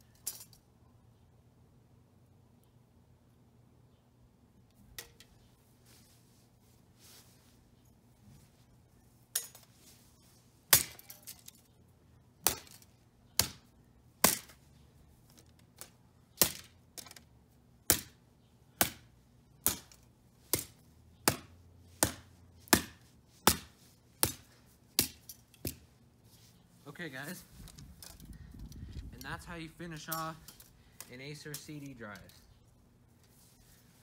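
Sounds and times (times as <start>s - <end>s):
golf club smashing plastic parts: 9.4s - 9.9s, 10.7s - 11.7s, 12.4s - 17.3s, 18.8s - 25.9s.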